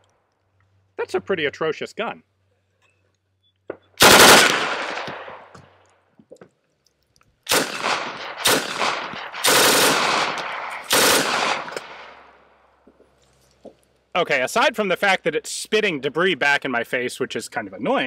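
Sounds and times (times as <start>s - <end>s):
machine pistol bursts: 4.0s - 5.4s, 7.5s - 12.1s
gunshot echo: 4.0s - 5.5s, 7.5s - 12.3s.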